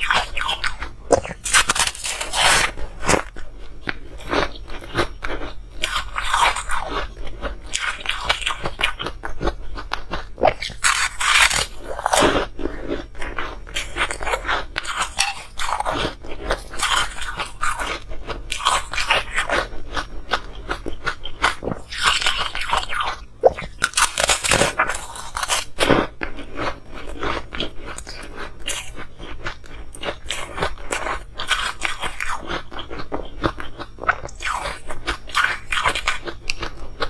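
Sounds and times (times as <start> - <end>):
ice being chewed: 0.0 - 37.0.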